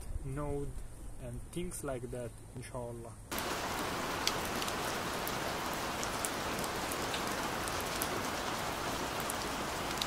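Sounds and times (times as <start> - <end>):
steady rain hiss: 3.0 - 10.0
raindrop ticks: 3.3 - 10.0.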